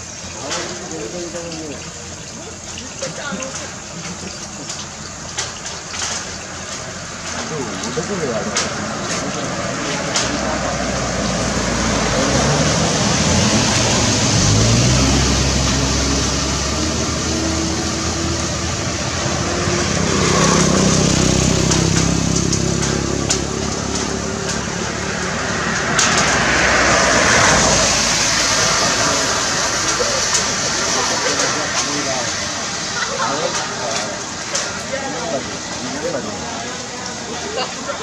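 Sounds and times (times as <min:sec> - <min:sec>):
vehicle engine running: 0:06.7 - 0:34.4
faint voices: 0:06.8 - 0:16.2, 0:26.7 - 0:38.0.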